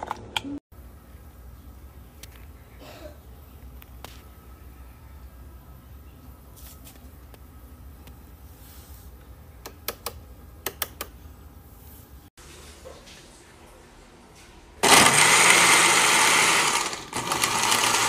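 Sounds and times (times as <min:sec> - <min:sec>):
faint low hum: 0:00.4 - 0:14.7.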